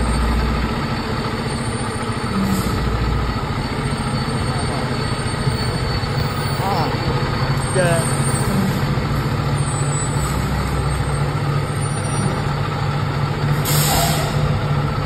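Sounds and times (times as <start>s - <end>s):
diesel engine idling: 0.0s - 15.0s
air brakes hissing: 2.4s - 3.1s, 13.5s - 14.6s.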